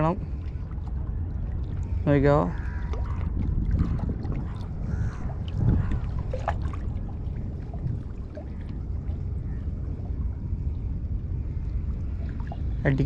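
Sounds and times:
water lapping against rocks: 0.0 - 10.4
wind rumble on microphone: 0.0 - 13.0.

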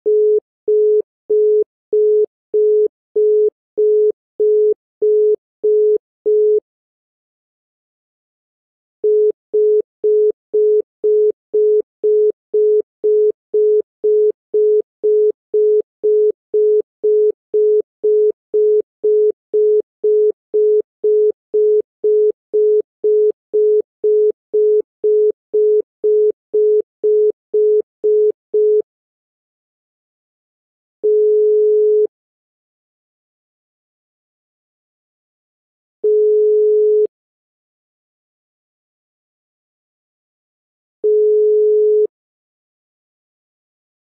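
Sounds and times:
telephone busy tone beeping: 0.1 - 6.6, 9.0 - 28.8, 31.0 - 32.1, 36.0 - 37.1, 41.0 - 42.1.

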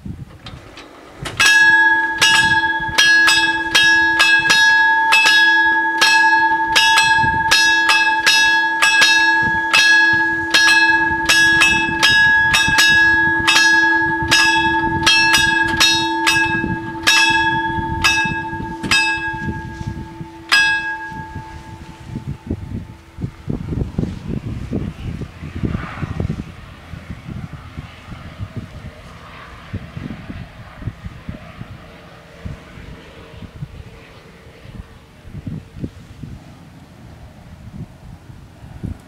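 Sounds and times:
level crossing bells ringing: 1.4 - 23.6.

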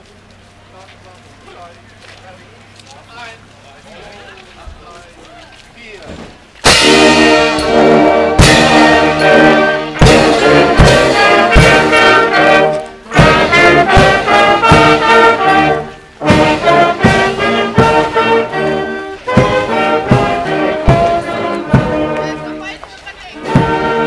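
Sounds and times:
brass band playing a march: 6.6 - 24.0.

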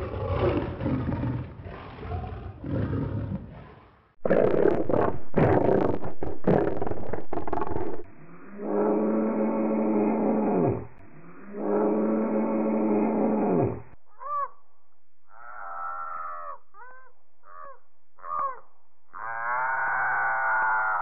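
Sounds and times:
deep monster roars: 0.0 - 5.9, 7.6 - 14.0
monkey-like shrieking cries: 19.2 - 21.0.

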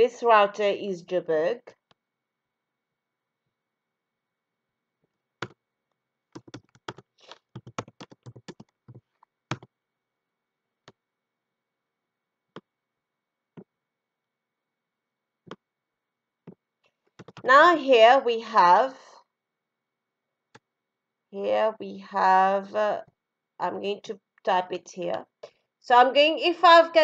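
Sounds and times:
typing on computer keyboard: 6.4 - 9.7, 17.2 - 17.5.

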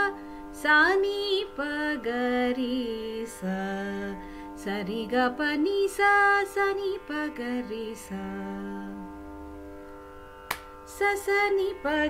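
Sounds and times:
woman singing a scale: 0.0 - 9.0, 10.9 - 12.0
sharp click: 10.5 - 10.7.

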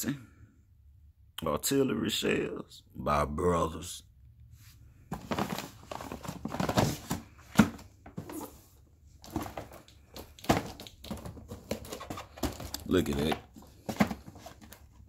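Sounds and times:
cardboard and plastic rustling: 4.7 - 15.0.

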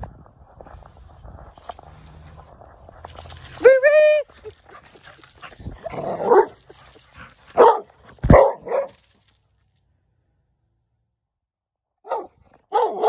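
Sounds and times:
dog barking: 6.0 - 6.6, 7.5 - 9.0, 12.0 - 13.0.

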